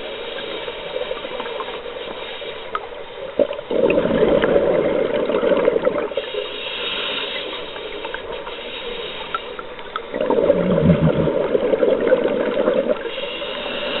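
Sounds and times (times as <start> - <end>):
regulator hissing breath in: 0.0 - 3.3, 6.1 - 10.1, 13.0 - 14.0
exhaled bubbles rushing underwater: 3.4 - 6.4, 10.0 - 14.0.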